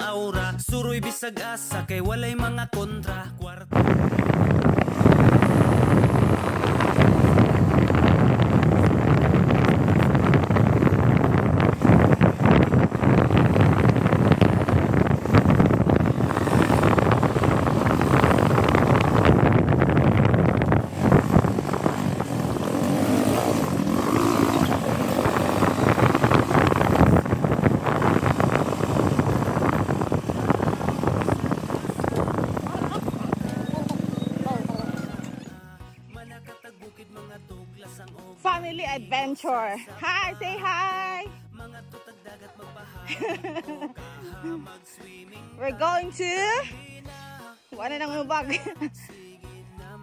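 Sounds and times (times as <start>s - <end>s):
wind buffeting microphone: 3.7s - 35.6s
low vehicle rumble: 3.7s - 36.4s.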